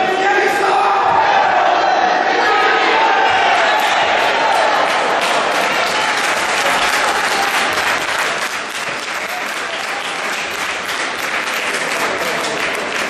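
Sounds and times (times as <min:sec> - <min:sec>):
spectators applauding: 0:03.3 - 0:13.0.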